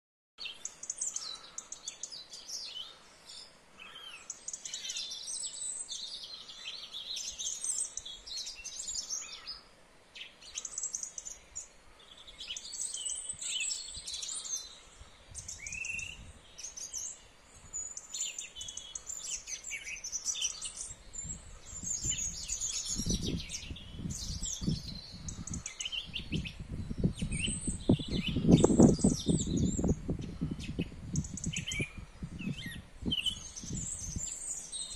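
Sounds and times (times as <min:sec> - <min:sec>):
songbirds singing: 0:00.4 - 0:34.9.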